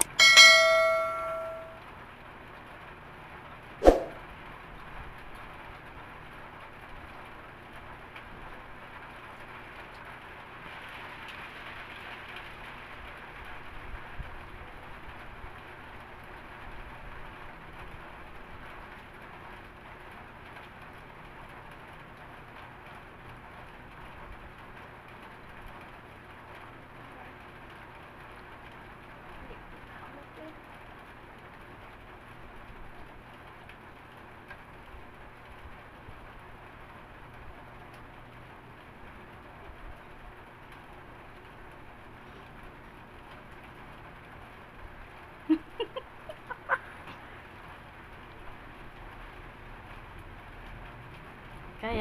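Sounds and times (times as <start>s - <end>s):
sharp knock with ring: 0.0s - 1.8s, 3.8s - 4.2s.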